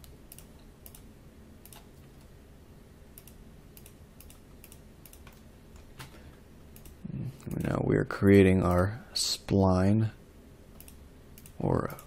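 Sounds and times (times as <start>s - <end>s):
low steady hum: 0.0s - 12.0s
faint mouse clicks: 10.8s - 12.0s.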